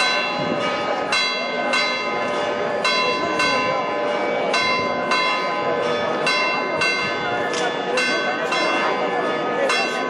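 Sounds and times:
church bells ringing: 0.0s - 10.0s.

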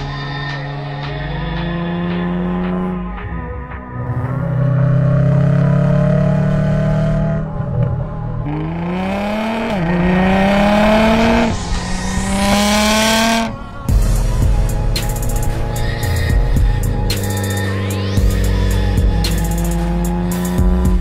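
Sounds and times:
sports car engines accelerating: 0.0s - 21.0s.

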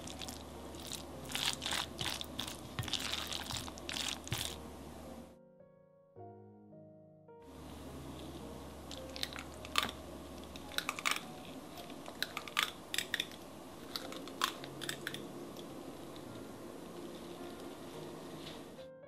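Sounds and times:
food handling clicks and crunches: 0.0s - 4.6s, 8.9s - 15.3s.

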